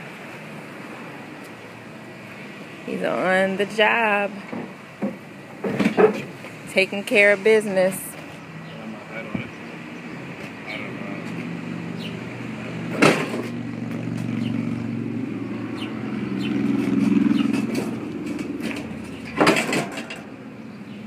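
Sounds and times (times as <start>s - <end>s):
vehicle engine running: 10.7s - 21.0s
loud clunks: 17.5s - 20.3s.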